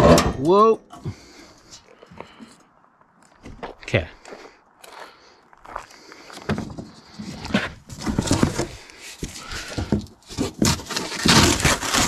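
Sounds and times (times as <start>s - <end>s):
cardboard being torn by hand: 10.3s - 12.0s.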